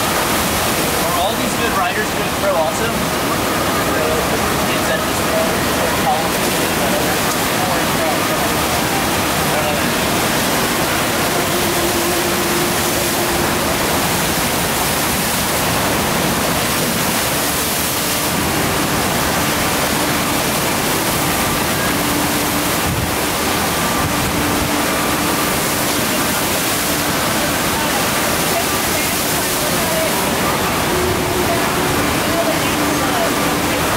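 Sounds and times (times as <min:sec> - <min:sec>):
water rushing: 0:00.0 - 0:33.9.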